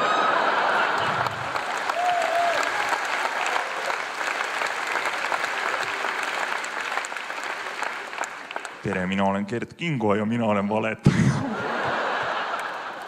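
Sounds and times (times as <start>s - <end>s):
audience laughing: 0.0s - 1.8s, 11.0s - 13.0s
audience applauding: 0.0s - 9.2s, 11.7s - 13.0s.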